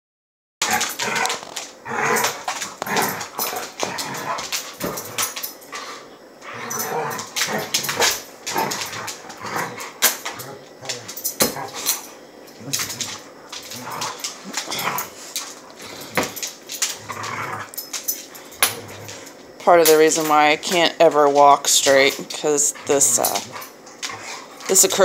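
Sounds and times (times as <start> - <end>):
dogs whining and barking: 0.6 - 19.5
paws scuffling on hard floor: 0.7 - 25.0.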